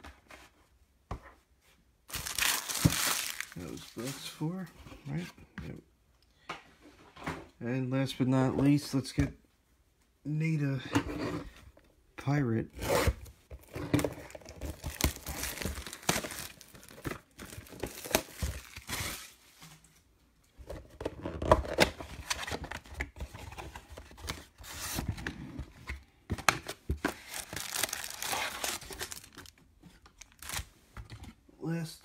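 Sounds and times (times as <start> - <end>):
plastic shrink-wrap tearing: 2.1 - 4.0, 14.2 - 19.1, 27.2 - 29.5, 30.2 - 30.7
cardboard box opening: 26.6 - 29.5.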